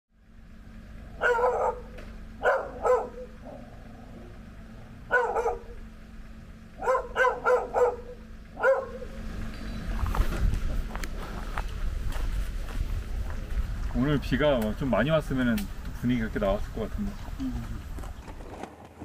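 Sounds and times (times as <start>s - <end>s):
dog barking: 1.2s - 3.7s, 5.1s - 5.8s, 6.8s - 9.1s.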